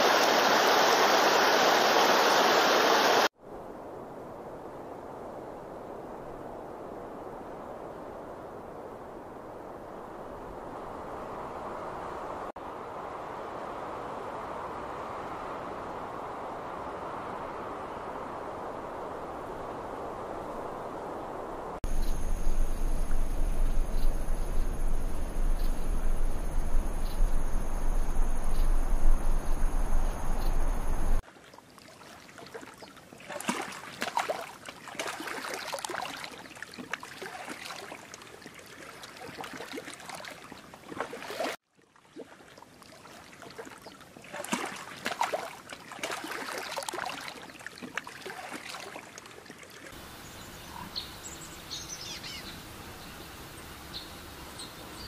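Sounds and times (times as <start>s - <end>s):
rushing noise with deep rumble: 10.2s - 31.2s
stream trickling over rocks: 21.8s - 50.3s.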